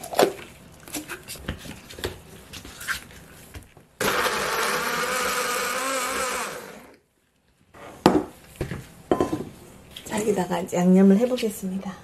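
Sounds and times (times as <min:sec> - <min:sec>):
blender motor grinding: 0:04.0 - 0:07.0.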